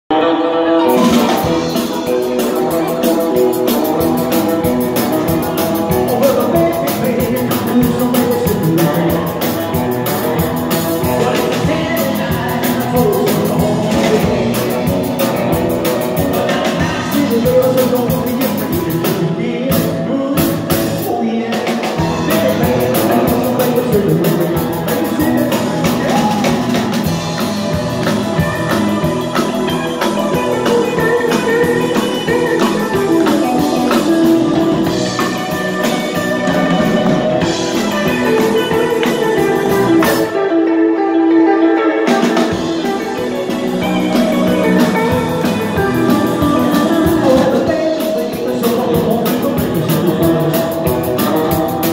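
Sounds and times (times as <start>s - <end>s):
drums: 0.0s - 51.9s
electric guitar: 0.0s - 51.9s
man singing: 0.1s - 51.9s.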